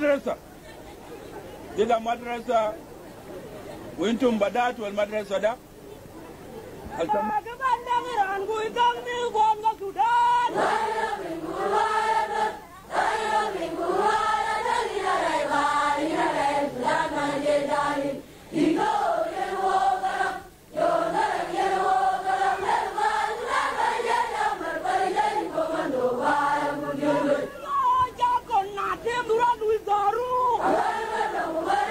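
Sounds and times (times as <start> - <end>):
group singing in unison: 10.5 - 27.6, 30.6 - 31.9.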